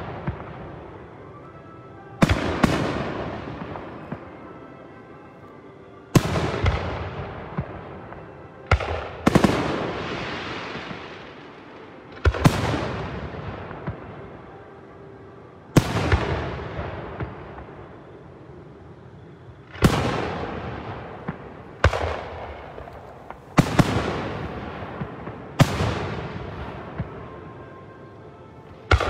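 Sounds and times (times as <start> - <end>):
fireworks bangs: 0.0 - 1.6, 2.2 - 4.7, 6.1 - 14.4, 19.6 - 27.9
fireworks crackle and rumble: 0.0 - 29.0.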